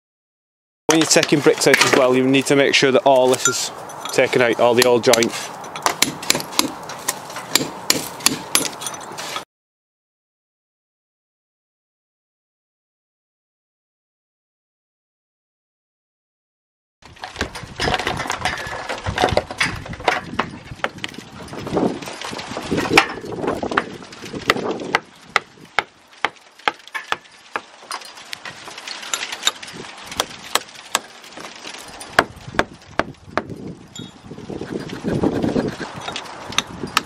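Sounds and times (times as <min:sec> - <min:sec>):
brick pieces rattling: 0:17.1 - 0:34.1.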